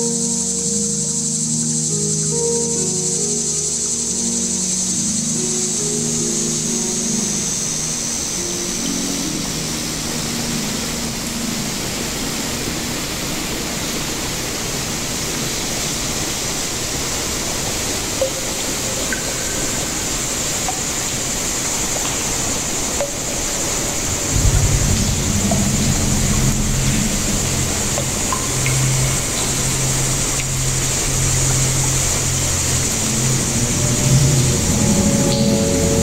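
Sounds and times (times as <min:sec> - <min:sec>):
river water rushing over rocks: 0:09.2 - 0:36.0
background music: 0:23.0 - 0:36.0.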